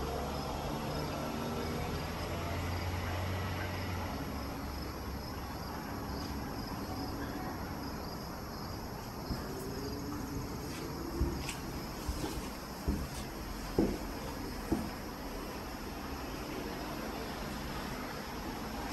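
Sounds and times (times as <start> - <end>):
insects chirping: 0.0 - 18.9
light knock: 12.2 - 15.0.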